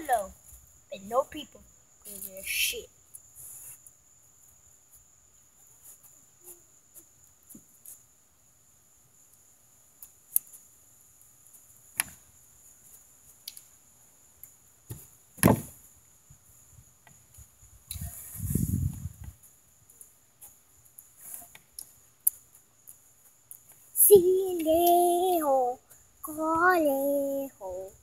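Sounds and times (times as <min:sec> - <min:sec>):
faint high hiss: 0:00.0 - 0:28.0
sharp knocks and thumps: 0:14.9 - 0:15.8.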